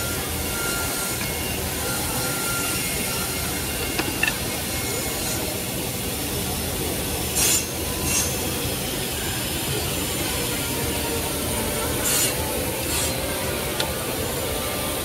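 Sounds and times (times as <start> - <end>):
table saw cutting wood: 7.2 - 15.0.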